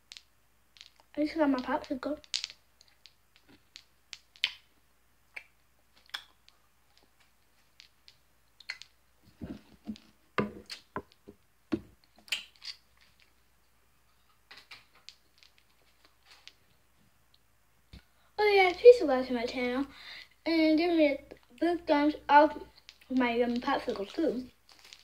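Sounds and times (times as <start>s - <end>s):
plastic wrapper crinkling: 24.6s - 25.0s.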